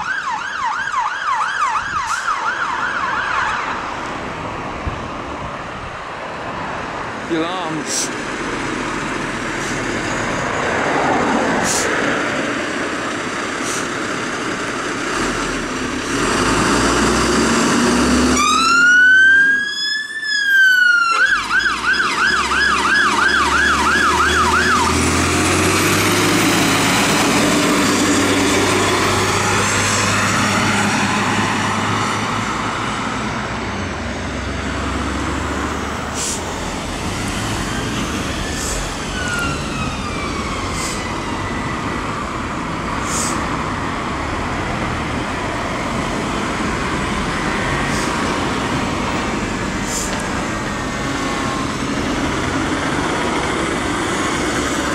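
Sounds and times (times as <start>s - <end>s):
siren wailing and yelping: 0.0s - 3.8s, 18.4s - 25.0s, 37.6s - 42.2s
road noise: 0.0s - 54.9s
diesel engine rumbling: 1.6s - 54.9s.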